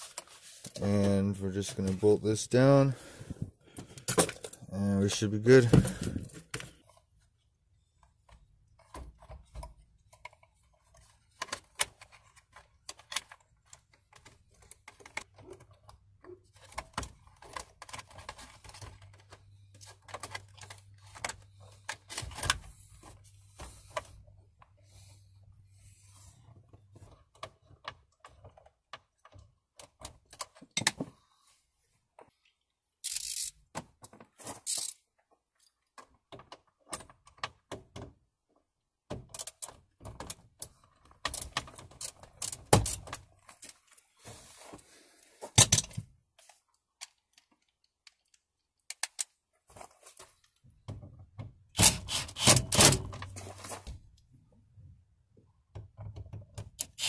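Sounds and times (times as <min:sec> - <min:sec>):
tools clicking and knocking: 0:33.0 - 0:35.0
cordless drill driving bolt: 0:51.8 - 0:53.0.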